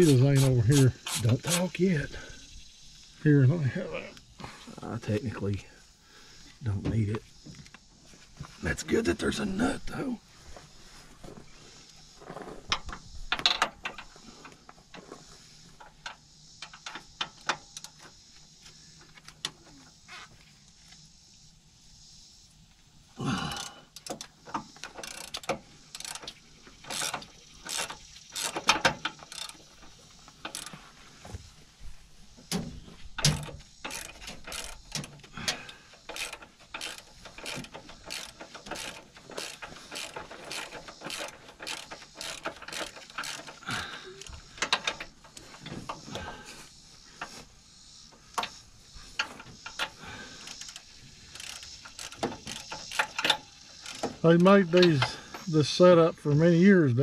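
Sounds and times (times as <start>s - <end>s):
ratchet wrench clicking: 0.0s - 1.8s, 23.6s - 30.8s, 33.2s - 45.5s, 49.2s - 55.2s.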